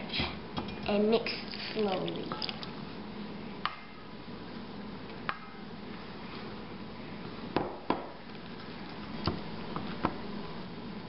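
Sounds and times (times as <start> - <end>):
spoon stirring in bowl: 1.5 - 2.7.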